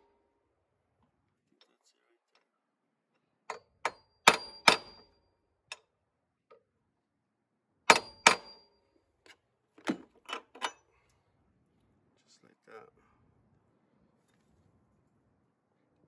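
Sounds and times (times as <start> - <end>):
hammer striking metal socket: 3.5 - 5.1, 7.9 - 8.7.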